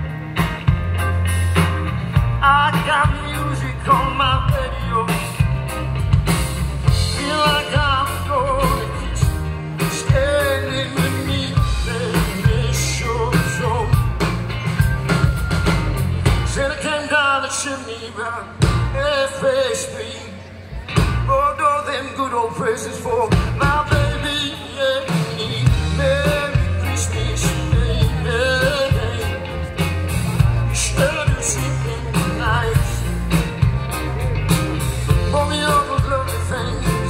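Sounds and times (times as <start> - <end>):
heavy bass: 0.0 - 19.7, 20.7 - 37.0
drums: 0.0 - 37.0
person singing: 2.2 - 5.8, 6.9 - 37.0.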